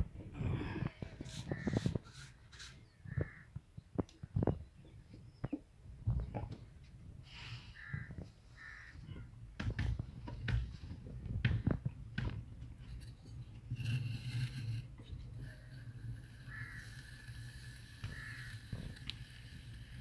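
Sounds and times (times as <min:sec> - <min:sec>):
metal tool scraping clay pot: 0:01.2 - 0:03.0, 0:12.9 - 0:20.0
crows cawing: 0:03.1 - 0:03.5, 0:07.8 - 0:09.0, 0:16.5 - 0:16.9, 0:18.1 - 0:18.6.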